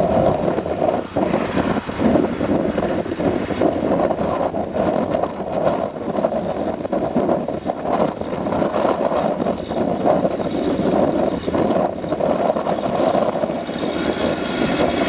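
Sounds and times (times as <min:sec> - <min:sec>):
tractor engine: 0:09.5 - 0:15.0.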